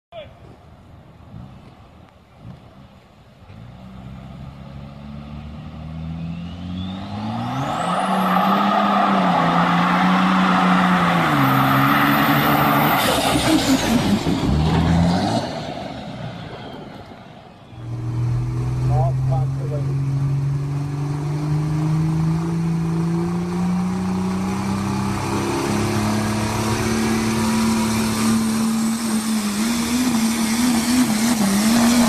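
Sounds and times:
truck engine revving: 3.5 - 32.0
tyres spinning and screeching: 6.2 - 19.1.

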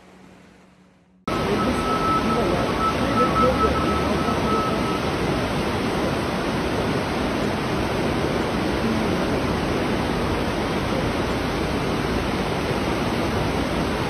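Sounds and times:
floodwater rushing: 0.0 - 14.0.

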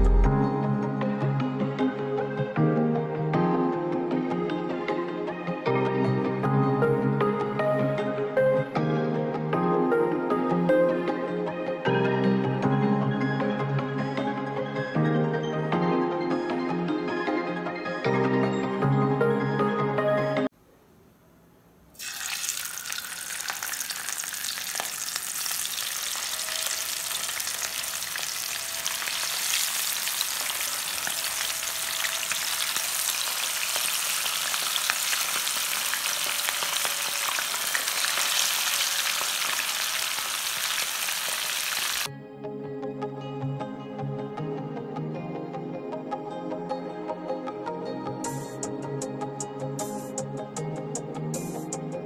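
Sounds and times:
fish frying in hot oil: 22.0 - 42.1.

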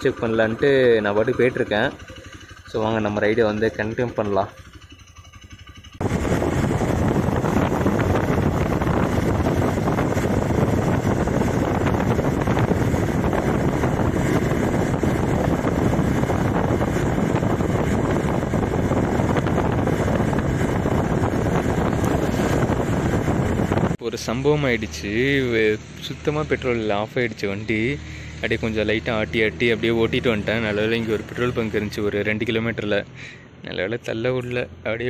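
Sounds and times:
motorcycle engine: 0.0 - 35.0
wind rushing over microphone: 6.0 - 32.2.

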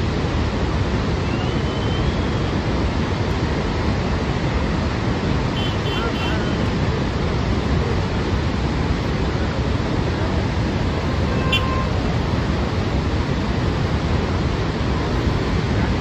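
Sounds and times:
floodwater rushing and crashing: 0.0 - 16.0
brief high tone: 11.2 - 12.0.

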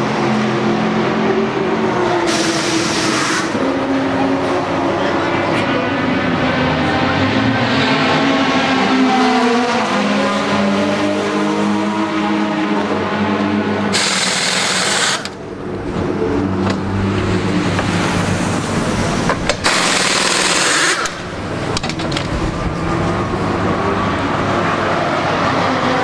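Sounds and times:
compressed air hissing: 13.9 - 15.4.

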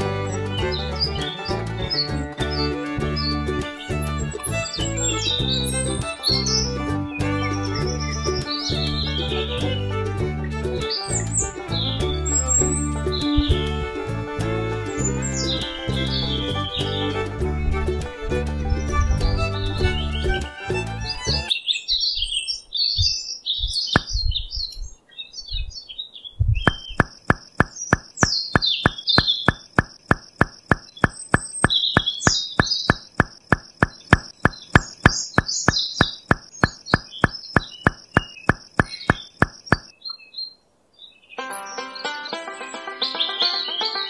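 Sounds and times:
small birds chirping: 0.0 - 44.0
steady ticking: 26.7 - 39.9.

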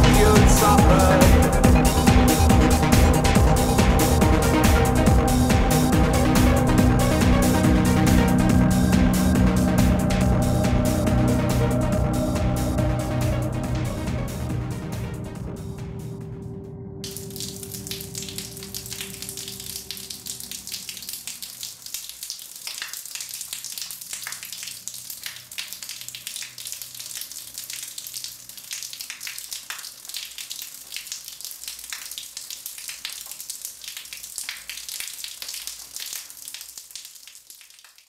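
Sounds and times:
held music chord: 0.0 - 21.3
shower spray on tiles: 17.0 - 38.0.

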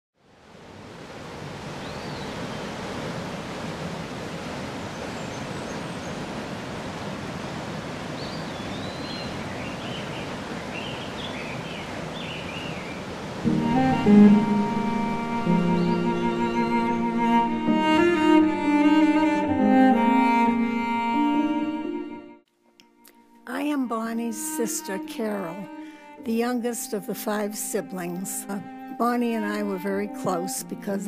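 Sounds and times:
rushing outdoor ambience: 0.2 - 18.3
bowed string music: 13.4 - 31.0.

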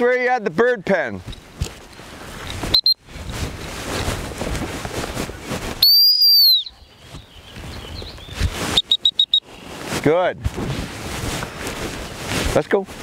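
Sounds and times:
dog training whistle: 2.7 - 3.0, 5.8 - 6.8, 8.7 - 9.5.

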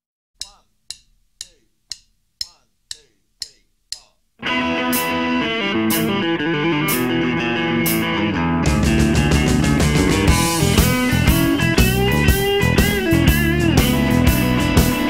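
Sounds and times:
count-in clicks: 0.4 - 4.3
blues-rock band playing: 4.4 - 15.0.

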